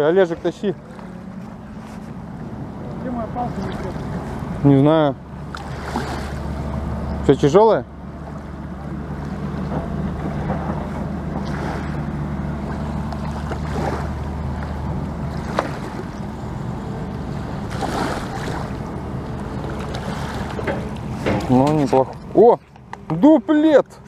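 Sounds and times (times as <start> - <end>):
steady low drone: 0.0 - 24.0
water lapping at riverbank: 0.0 - 24.0
fish splashing in shallows: 5.4 - 6.6, 11.3 - 16.4, 17.2 - 21.3.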